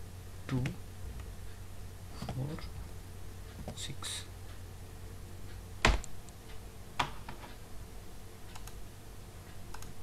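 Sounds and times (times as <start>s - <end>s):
faint low hum: 0.0s - 10.0s
computer keys and mouse clicks: 8.5s - 8.8s, 9.7s - 10.0s.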